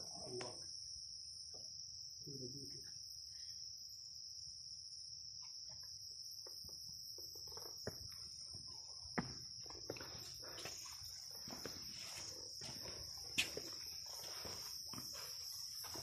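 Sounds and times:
insect chorus trilling: 0.0 - 16.0
footsteps: 9.2 - 16.0.

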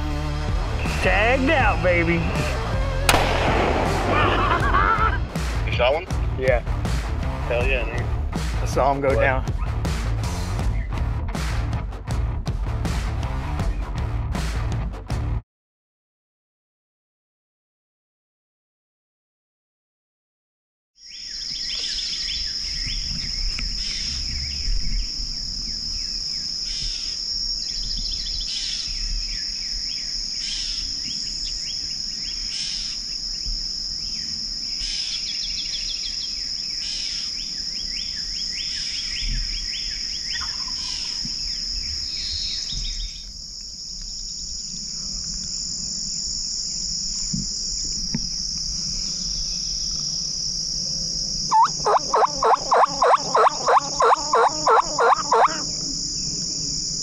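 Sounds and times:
high-pitched insect trilling: 21.0 - 57.0
short chirping calls: 34.8 - 43.3, 51.5 - 55.8.

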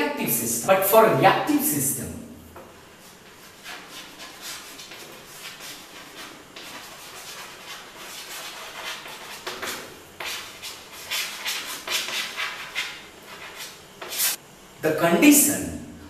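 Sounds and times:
chalk writing on a chalkboard: 3.0 - 14.4.

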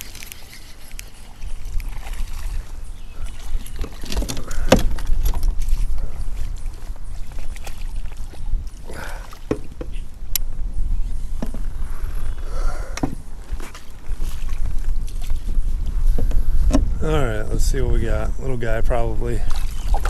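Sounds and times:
handling and water noise: 0.0 - 20.0
steady low rumble: 10.0 - 19.5.

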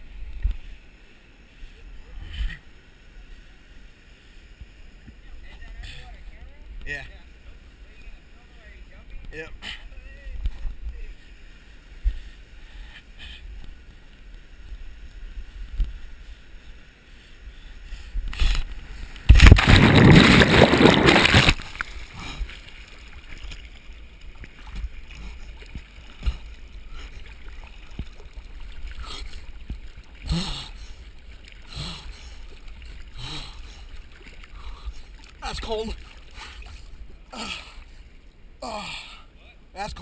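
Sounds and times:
water splashing and lapping: 18.1 - 38.2
loud splash into water: 19.3 - 21.9.

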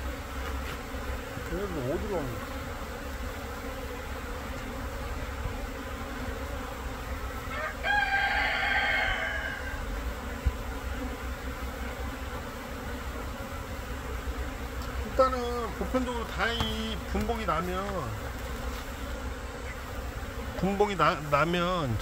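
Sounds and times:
bees buzzing: 0.0 - 22.0
rooster crowing: 7.4 - 9.9.

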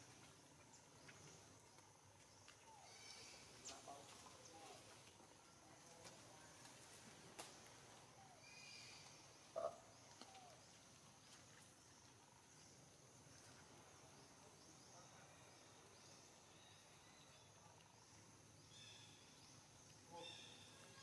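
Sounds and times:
faint bird chirps: 2.4 - 4.8, 8.2 - 10.7, 13.8 - 21.0.

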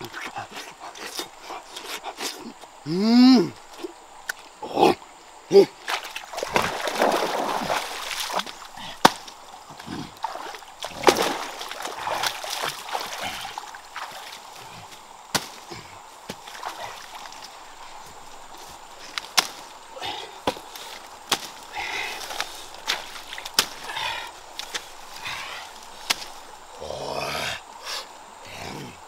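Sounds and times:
wading through water: 5.7 - 26.8
rustling among plants: 5.9 - 26.7.

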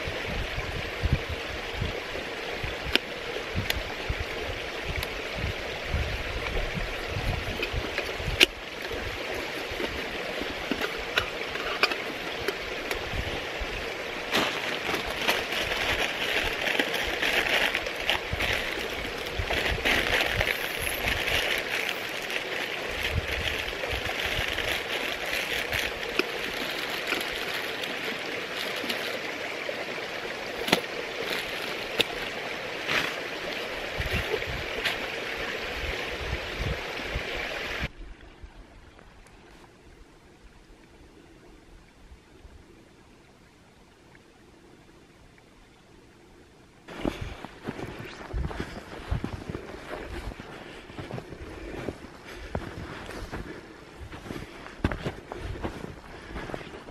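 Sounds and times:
plastic bag crinkling: 14.6 - 29.3.

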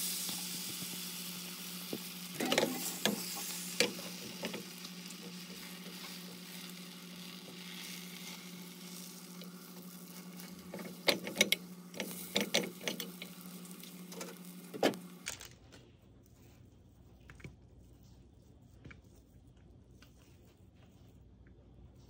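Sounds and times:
egg frying in a pan: 0.0 - 15.2.

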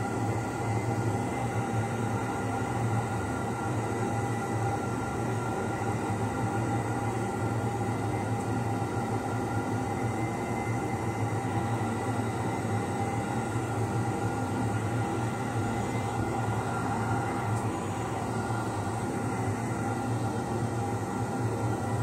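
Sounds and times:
machine hum: 14.2 - 22.0.

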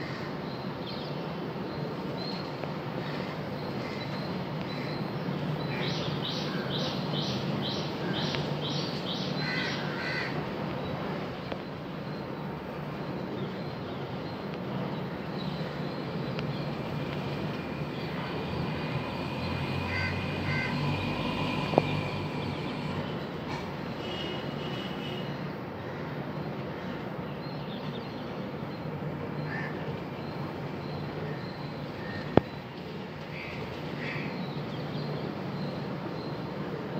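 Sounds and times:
crow cawing: 9.4 - 10.4, 19.2 - 22.8.

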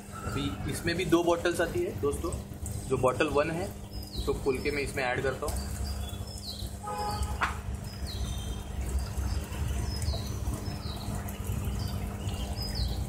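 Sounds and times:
bird chirping: 3.8 - 13.0.

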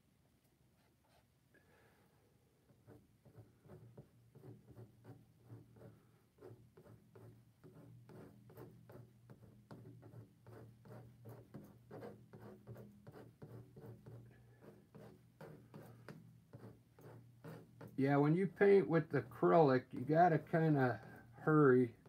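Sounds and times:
palette knife scraping canvas: 9.7 - 22.0.

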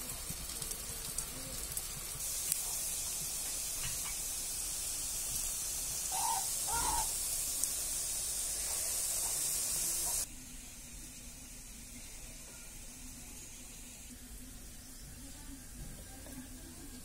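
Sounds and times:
hot oil sizzling: 0.0 - 17.0
short bird calls: 6.1 - 7.2.

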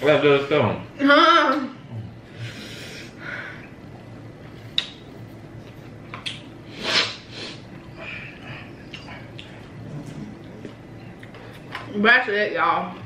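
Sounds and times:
person sniffing: 6.7 - 7.6.

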